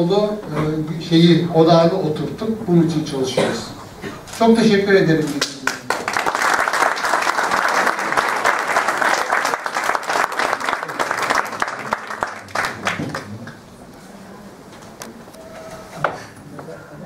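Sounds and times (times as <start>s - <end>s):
audience applauding: 5.4s - 13.6s.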